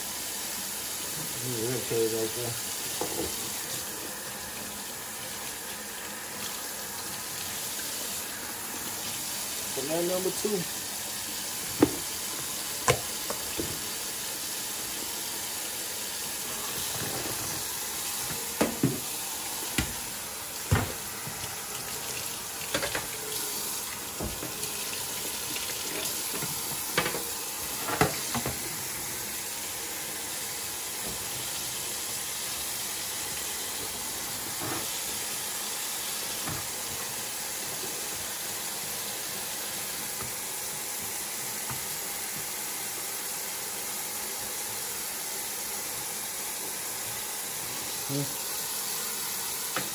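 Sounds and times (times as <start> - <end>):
tap running into steel sink: 3.0 - 3.5, 11.7 - 12.2, 12.8 - 13.9, 18.3 - 19.1, 19.7 - 20.0, 20.7 - 21.6, 24.2 - 24.7
knife and board knocking on sink: 11.8 - 12.1, 18.3 - 19.1, 19.8 - 20.0, 20.7 - 21.0.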